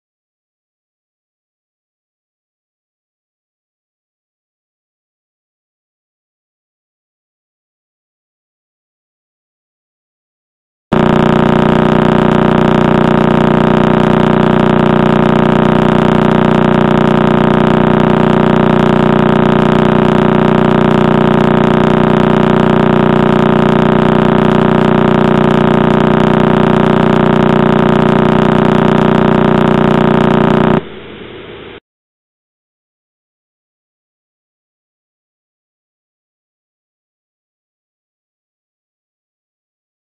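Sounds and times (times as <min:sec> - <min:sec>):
rapid pulsing buzz: 0:10.9 - 0:31.8.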